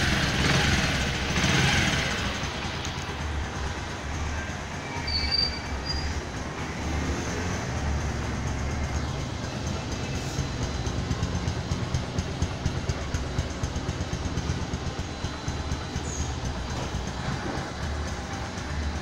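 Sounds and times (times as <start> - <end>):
motorcycle engine idling: 0.0 - 19.0.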